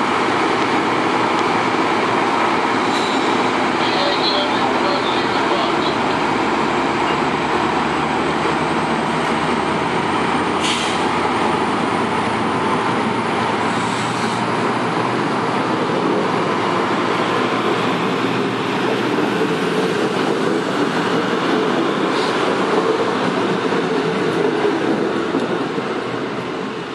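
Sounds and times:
diesel locomotive engine: 0.0s - 26.9s
train coaches rumbling on rails: 0.0s - 26.9s.

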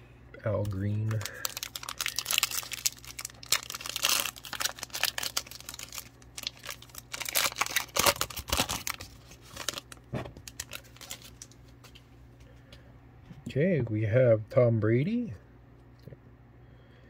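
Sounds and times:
plastic wrapper crinkling: 0.5s - 12.0s.

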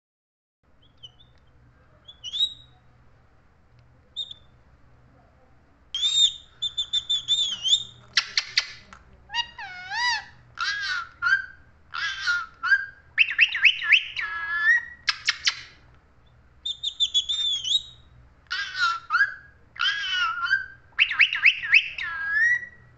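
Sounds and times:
parakeet chirps: 0.8s - 2.8s, 4.1s - 4.5s, 6.0s - 15.8s, 16.6s - 22.9s
parakeet whistles: 2.1s - 2.7s, 6.0s - 8.7s, 9.4s - 15.8s, 16.6s - 22.8s.

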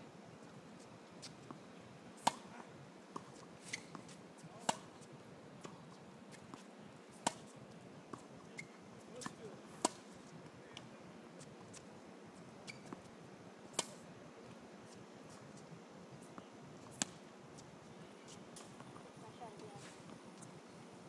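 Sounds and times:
tennis balls struck by rackets: 2.2s - 2.5s, 3.9s - 5.0s, 7.2s - 7.5s, 8.1s - 10.1s, 13.7s - 14.0s.

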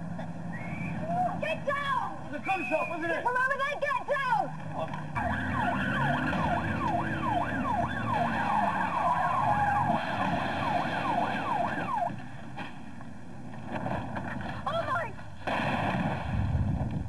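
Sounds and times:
vehicle engine noise: 0.0s - 15.4s
police siren wailing: 5.1s - 12.2s.

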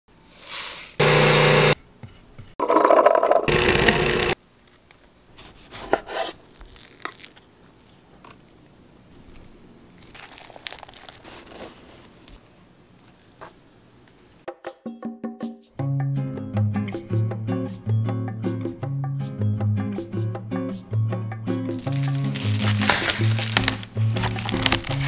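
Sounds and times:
food processor whirring: 1.0s - 1.8s, 2.7s - 4.4s.

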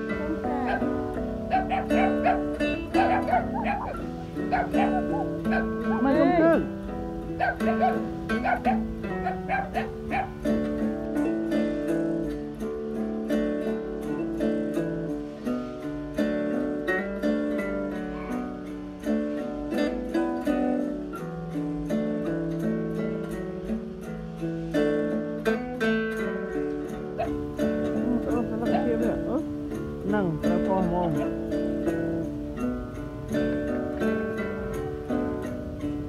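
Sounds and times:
plucked string music: 0.0s - 36.0s.

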